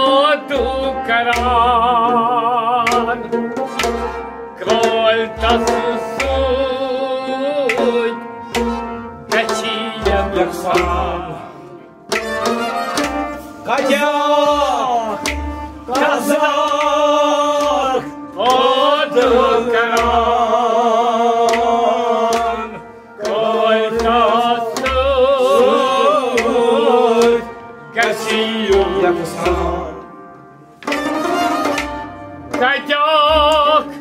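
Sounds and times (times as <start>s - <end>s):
man singing: 0.0s - 3.8s, 4.6s - 11.9s, 13.5s - 30.2s, 32.4s - 34.0s
harmonium: 0.0s - 32.9s
low drum beats: 0.6s - 7.0s.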